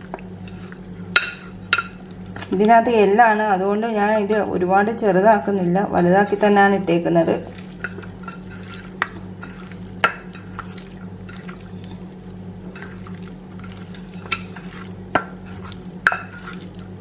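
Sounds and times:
wet squelches of chicken in bowl: 0.0 - 2.6, 7.4 - 17.0
steady low hum: 0.0 - 17.0.

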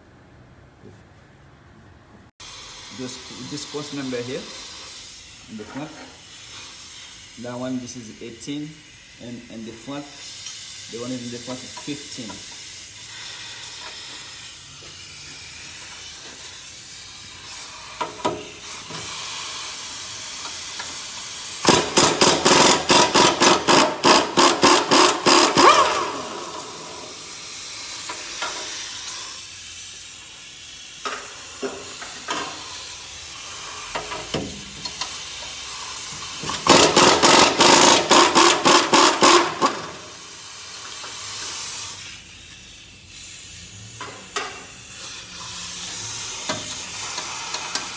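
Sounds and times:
steady hiss: 2.4 - 22.1
impact wrench hammering: 17.8 - 19.2, 20.4 - 29.0, 33.6 - 41.5, 44.0 - 44.8, 45.8 - 47.9.

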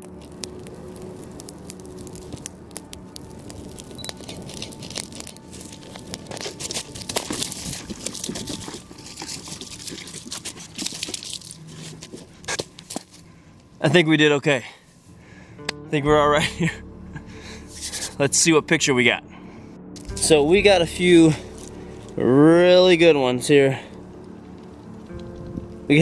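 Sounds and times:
firework crackling and fizzing: 0.0 - 13.2.

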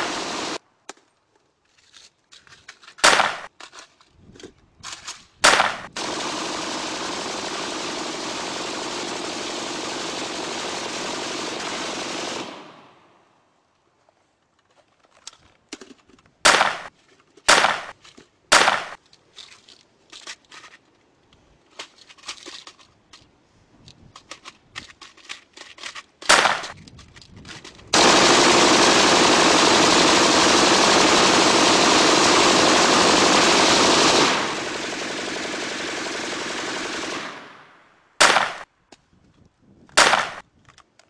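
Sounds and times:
gunshots: 3.0 - 3.5, 5.4 - 13.0, 16.4 - 16.9, 17.5 - 19.0, 26.2 - 26.8, 27.9 - 38.7, 40.0 - 40.4.

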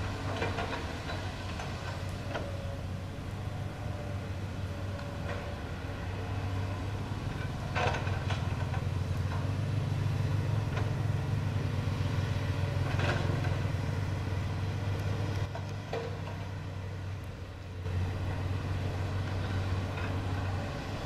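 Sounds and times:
excavator diesel engine rumbling: 0.0 - 21.0
excavator gear clanking: 7.3 - 9.5, 12.7 - 13.7.

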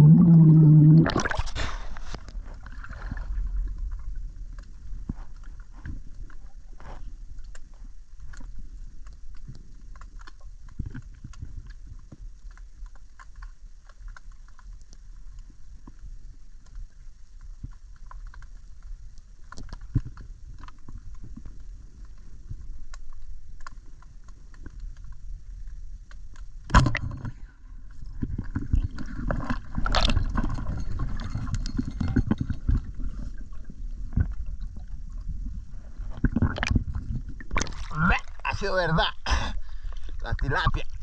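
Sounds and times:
fish struggling churning water: 0.0 - 4.0, 27.8 - 40.2
muffled underwater water rumble: 0.0 - 41.0
underwater clicks: 0.1 - 2.8, 7.3 - 35.4, 36.0 - 38.5.

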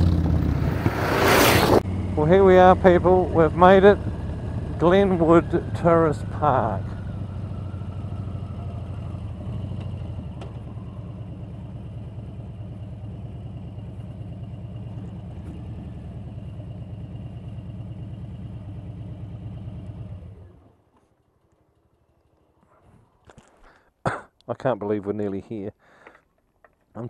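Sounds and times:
motorcycle engine idling: 1.9 - 22.7.

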